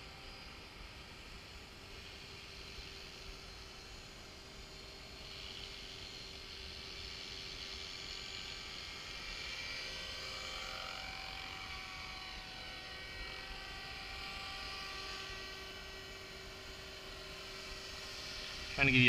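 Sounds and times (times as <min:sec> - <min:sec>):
rc helicopter motor whine: 0:00.0 - 0:19.0.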